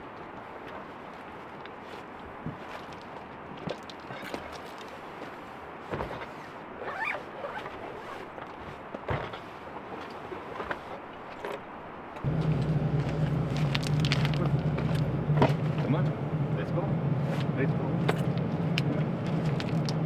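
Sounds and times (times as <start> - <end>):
gear rustling: 1.1 - 11.6, 12.2 - 16.1, 17.3 - 20.0
zipper-like rasps: 6.2 - 8.3
truck engine idling: 12.2 - 20.0.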